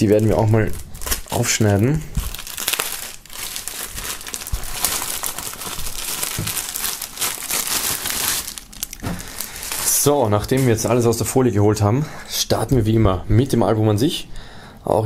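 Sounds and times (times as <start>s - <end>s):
plastic film crinkling: 0.0s - 11.1s.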